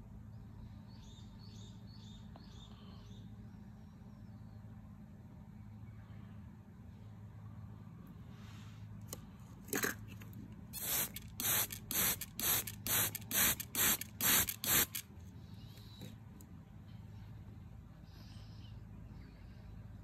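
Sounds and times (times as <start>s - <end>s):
spray bottle squirts hissing: 10.8s - 15.0s.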